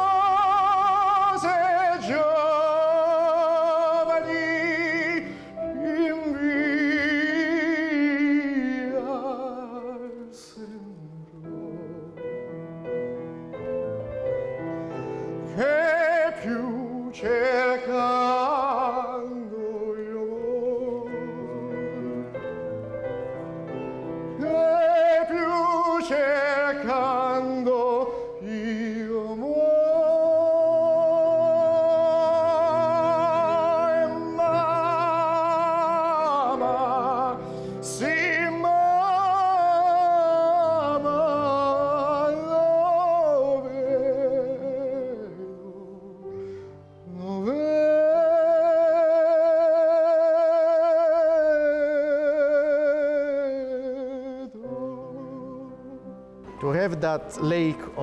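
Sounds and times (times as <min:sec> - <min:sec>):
man singing operatically: 0:00.0 - 0:12.3, 0:15.4 - 0:22.7, 0:24.3 - 0:46.2, 0:47.0 - 0:58.0
piano accompaniment: 0:00.0 - 0:58.0.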